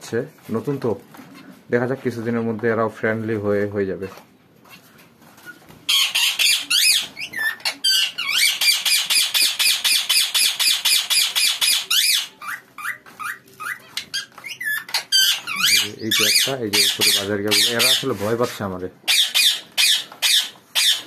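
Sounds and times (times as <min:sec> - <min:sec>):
budgerigars chirping and squawking: 0:05.9 - 0:18.4, 0:19.0 - 0:21.0.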